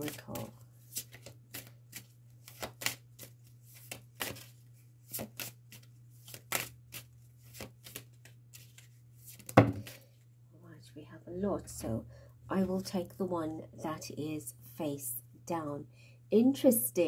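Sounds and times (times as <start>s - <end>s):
cards being shuffled: 0.0s - 10.2s.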